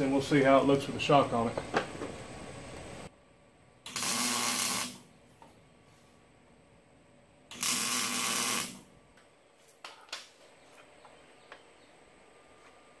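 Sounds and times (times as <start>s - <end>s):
welder hissing: 3.8s - 5.1s, 7.5s - 8.9s.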